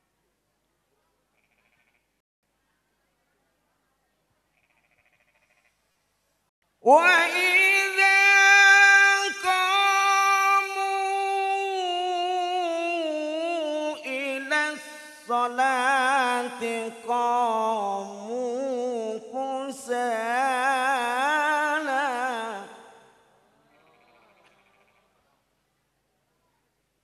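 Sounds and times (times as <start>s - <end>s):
man chanting melodically through pa: 6.8s - 22.9s.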